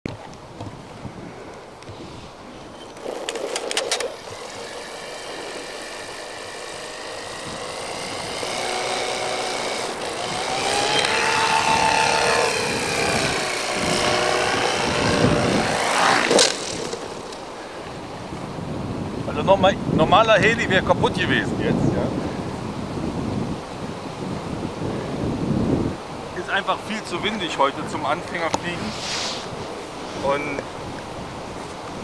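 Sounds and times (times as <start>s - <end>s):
model helicopter rotor whining: 2.7s - 18.1s.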